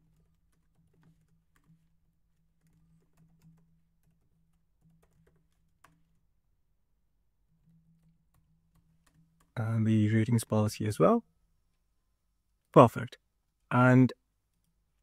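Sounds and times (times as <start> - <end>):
computer keyboard typing: 0.0 - 6.4, 7.6 - 9.6.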